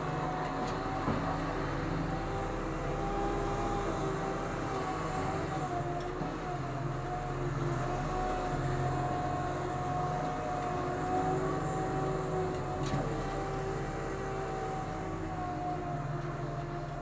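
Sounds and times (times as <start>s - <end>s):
garbage truck engine drone: 0.0s - 17.0s.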